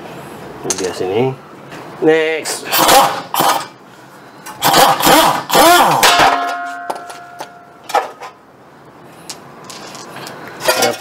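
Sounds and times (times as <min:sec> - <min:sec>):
metal clanking and scraping on pot: 0:10.6 - 0:11.0.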